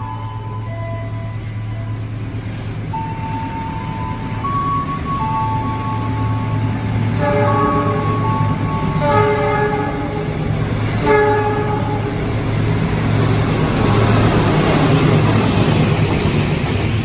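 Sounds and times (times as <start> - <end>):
locomotive engine hum: 0.0 - 17.0
train rumbling past: 0.0 - 17.0
locomotive horn blasts: 7.1 - 12.2.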